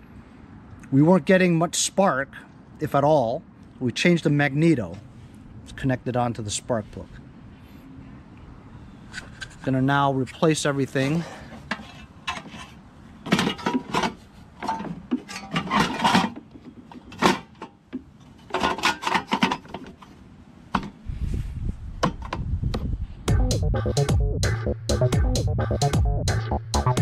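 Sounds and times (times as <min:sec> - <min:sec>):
metal and plastic parts clattering: 0:11.2 - 0:21.0
electronic music with low beat: 0:23.3 - 0:27.0.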